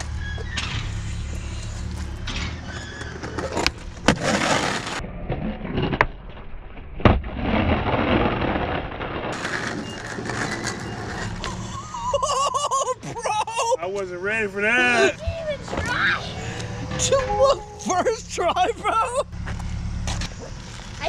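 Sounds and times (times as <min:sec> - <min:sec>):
skateboard wheels rolling on concrete: 0:00.0 - 0:21.0.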